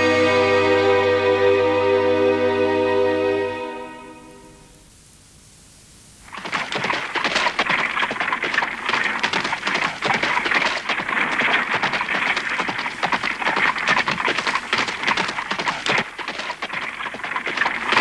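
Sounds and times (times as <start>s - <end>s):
music: 0.0s - 4.9s
carriage wheels on gravel road: 6.3s - 18.0s.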